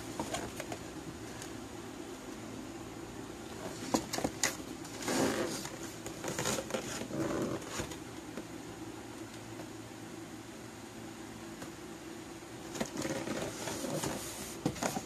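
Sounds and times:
steady low background hum: 0.0 - 15.0
cardboard rubbing scrapes: 4.9 - 8.0, 12.8 - 15.0.

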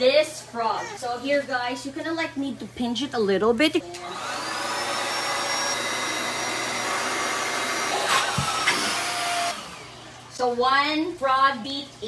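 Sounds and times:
electric air pump whining: 4.0 - 10.3.

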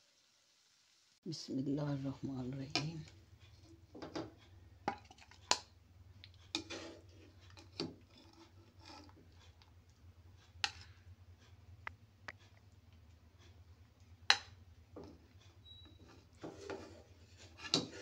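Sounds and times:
wooden spatula scraping a pan: 2.0 - 5.6, 6.3 - 9.7, 10.3 - 11.1, 14.3 - 18.0.

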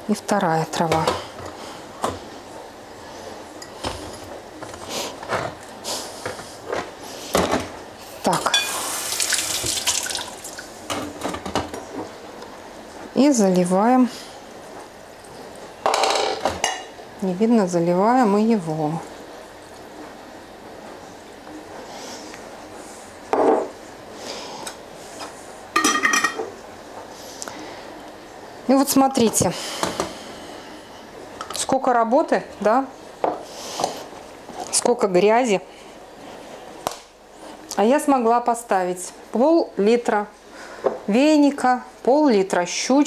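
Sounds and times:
tap water running into sink: 8.7 - 10.7.

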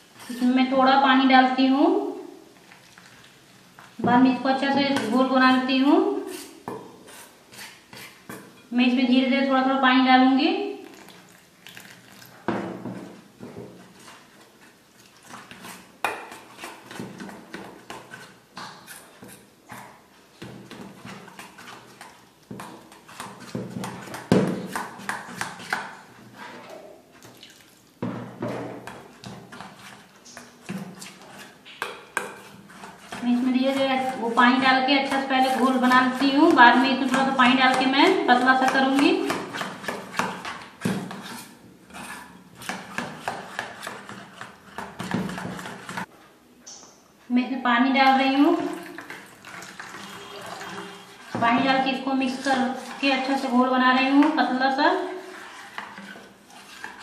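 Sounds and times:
spoon scraping a steel bowl: 0.2 - 0.6, 28.9 - 46.1, 49.0 - 57.0
hand beating batter wet slaps: 35.1 - 41.2.

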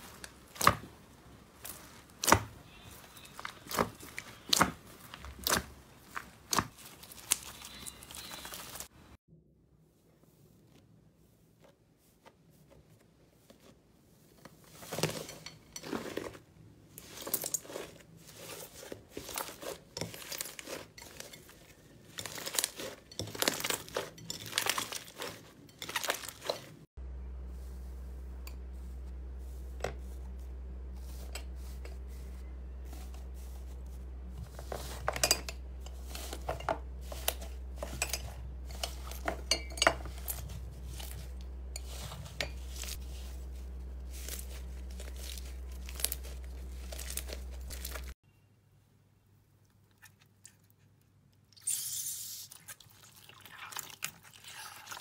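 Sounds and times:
steady low hum: 27.0 - 48.2.

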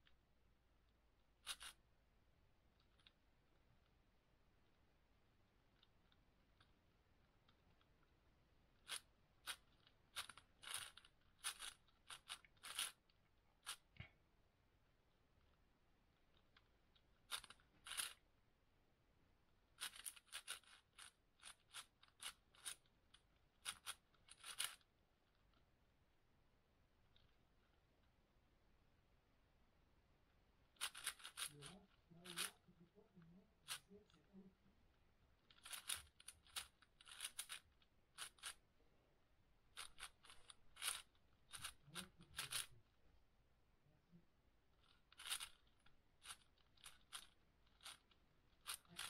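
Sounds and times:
plastic cube clicking: 8.8 - 13.9, 23.6 - 24.9, 30.8 - 32.6, 35.5 - 38.6, 39.8 - 42.7, 44.8 - 49.0.

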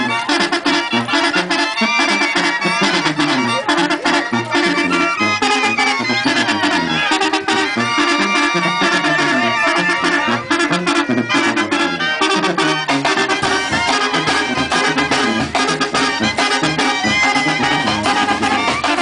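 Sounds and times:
brass band music: 0.0 - 19.0.

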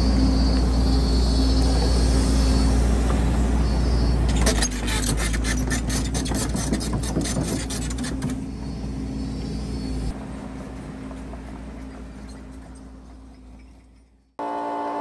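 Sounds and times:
heavy diesel machinery running: 0.0 - 5.7.

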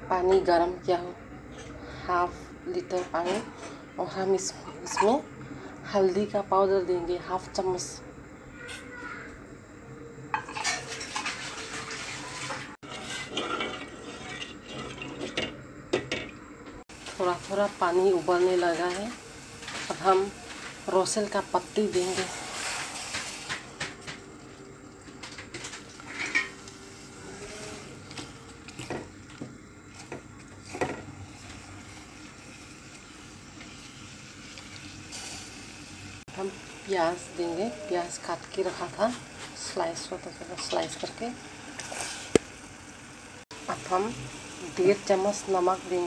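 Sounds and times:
spoon scraping a metal pot: 10.4 - 15.4
heating water hiss: 16.9 - 46.0.

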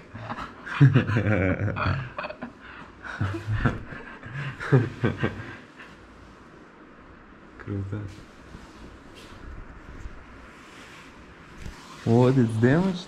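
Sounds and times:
light chuckling: 0.1 - 6.1.

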